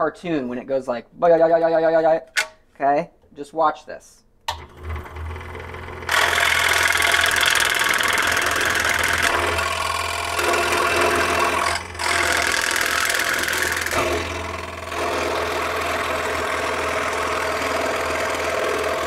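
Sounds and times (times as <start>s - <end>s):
scroll saw cutting plywood: 4.5s - 19.0s.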